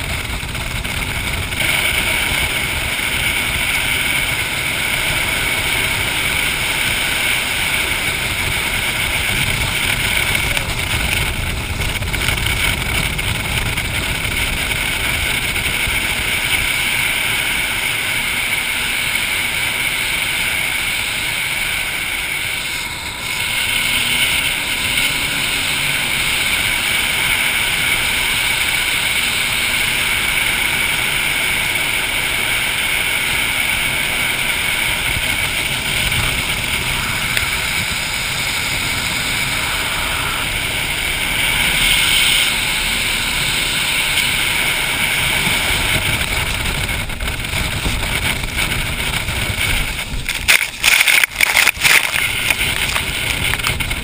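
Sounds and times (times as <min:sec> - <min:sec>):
boat engine drone: 0:00.0 - 0:54.0
wind buffeting microphone: 0:00.0 - 0:54.0
rushing water: 0:34.8 - 0:54.0.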